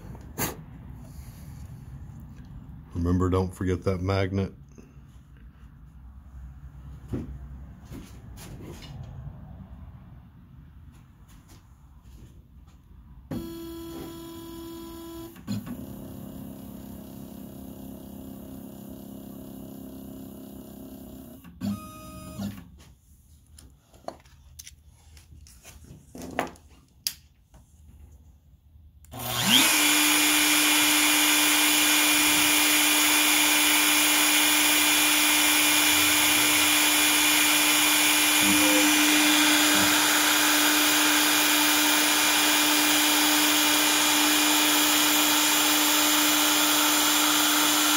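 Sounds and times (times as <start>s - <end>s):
router spindle whining: 13.3s - 22.6s, 29.1s - 47.9s
stepper motors whining: 29.1s - 47.9s.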